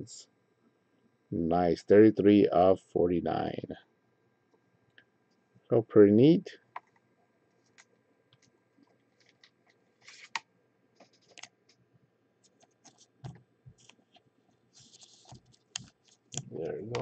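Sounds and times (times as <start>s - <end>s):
card clicks and rustles: 9.2s - 10.4s.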